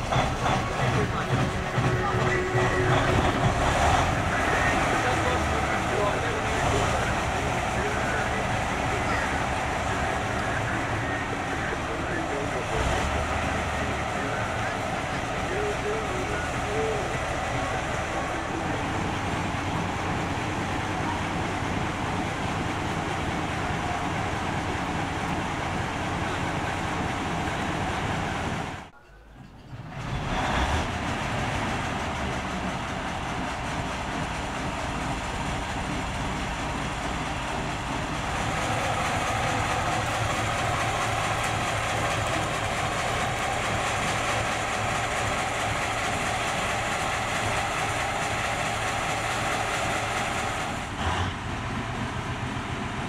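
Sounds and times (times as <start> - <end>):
steady whine: 0.0 - 29.7
diesel locomotive engine running: 0.0 - 53.0.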